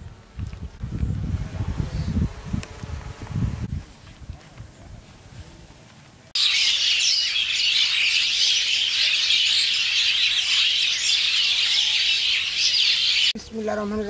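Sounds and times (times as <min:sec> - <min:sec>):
small birds chirping and twittering: 0:06.3 - 0:14.0.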